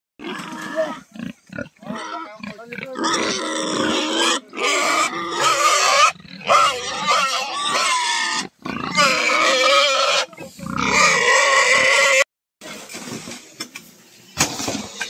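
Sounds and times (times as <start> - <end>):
young pigs squealing: 0.2 - 12.2.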